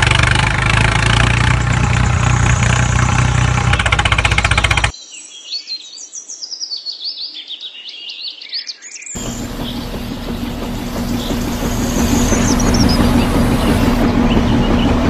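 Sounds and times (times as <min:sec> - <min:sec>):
motor running: 0:09.2 - 0:15.0
rapid high bird chirping: 0:09.2 - 0:15.0
steady mechanical hum: 0:09.2 - 0:15.0.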